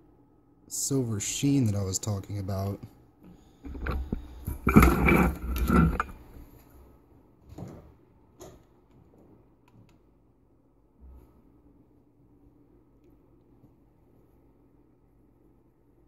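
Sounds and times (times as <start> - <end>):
phone handling rustling: 3.7 - 6.4.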